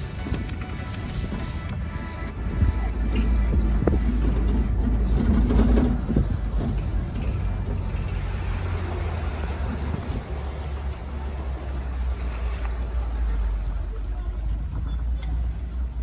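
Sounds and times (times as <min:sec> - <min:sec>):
truck engine rumble: 0:00.0 - 0:16.0
knocks and rattles: 0:02.9 - 0:08.8.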